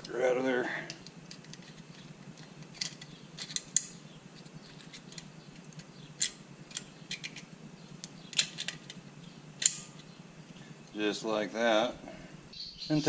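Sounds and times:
small sharp metal clicks: 0.9s - 9.0s, 9.6s - 10.2s.

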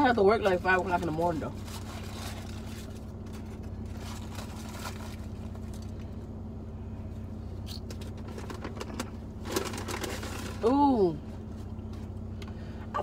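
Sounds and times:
car engine and air conditioning hum: 0.0s - 13.0s
faint rustles and clicks: 0.6s - 6.3s.

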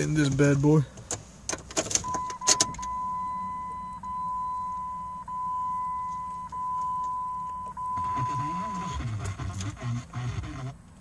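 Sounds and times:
dashboard warning chime beeping: 2.0s - 10.4s.

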